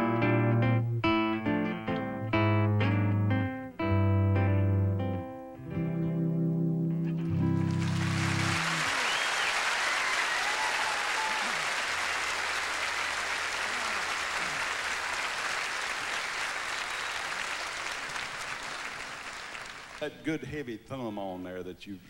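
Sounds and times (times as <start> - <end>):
guitar chord ringing: 0.0 - 8.8
large audience applauding: 7.4 - 20.2.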